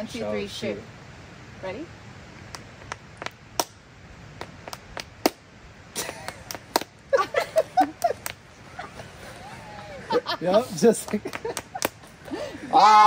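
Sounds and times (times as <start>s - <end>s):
voices: 0.0s - 1.0s, 6.0s - 13.0s
fists slapping into palms: 4.4s - 5.4s, 6.0s - 7.0s, 7.9s - 8.4s, 11.0s - 12.1s.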